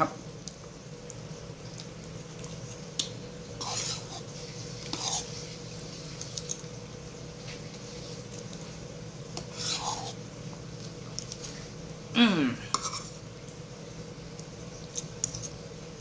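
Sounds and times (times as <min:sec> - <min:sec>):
steady low hum: 0:00.0 - 0:16.0
spoon scraping: 0:03.6 - 0:05.4, 0:12.7 - 0:13.2.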